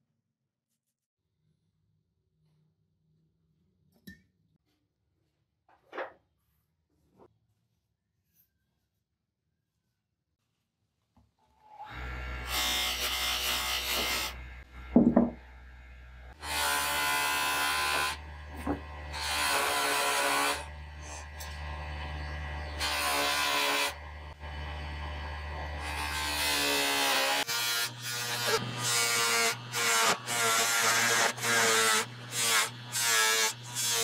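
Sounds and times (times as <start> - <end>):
loud knock: 15.0 - 15.4
buffing wheel motor hum: 20.7 - 22.8.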